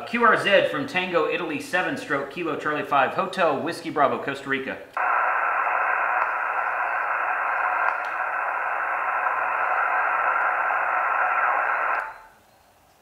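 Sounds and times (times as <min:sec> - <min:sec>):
radio static hiss: 0:05.0 - 0:12.3.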